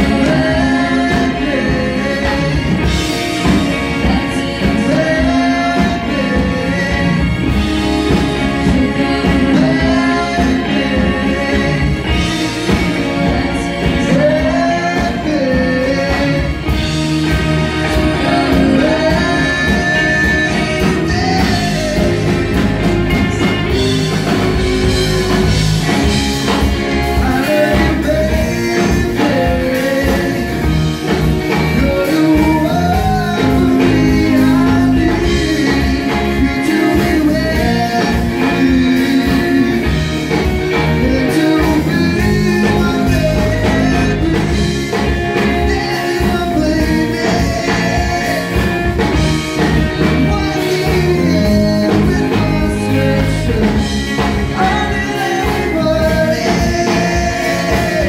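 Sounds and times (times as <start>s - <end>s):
lead vocalist singing: 0.0s - 58.0s
pop rock band playing: 0.0s - 58.0s.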